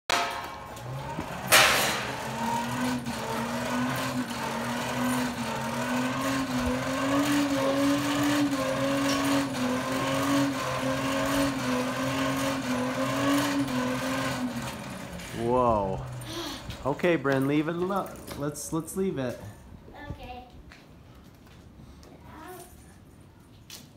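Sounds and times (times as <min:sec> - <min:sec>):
sharp clatter: 0:00.0 - 0:15.4
forge blower whirring: 0:00.1 - 0:19.3.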